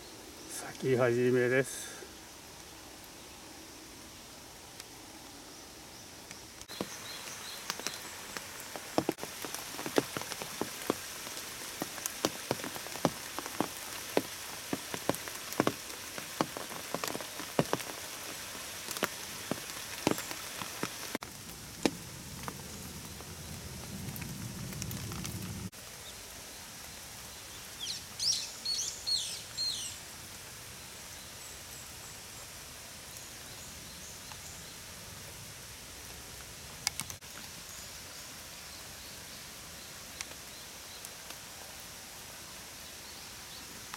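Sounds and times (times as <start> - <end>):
rain hiss: 0.0 - 43.9
raindrops tapping on umbrella: 6.6 - 23.2
bird chirping: 27.8 - 30.0.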